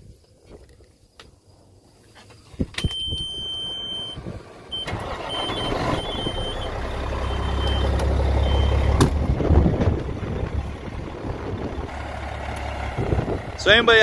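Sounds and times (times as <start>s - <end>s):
high warning beep: 2.8s - 8.9s
diesel engine cranking and running: 3.0s - 14.0s.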